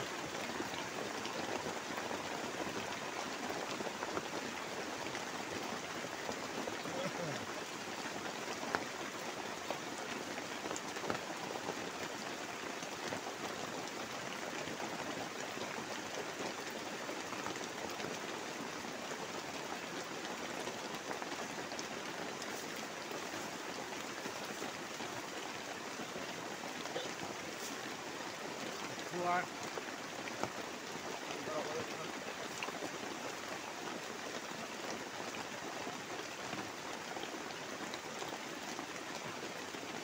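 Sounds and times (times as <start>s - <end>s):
heavy rain on a tarp: 0.0s - 40.0s
rain drop ticks: 8.6s - 8.9s, 21.0s - 35.4s.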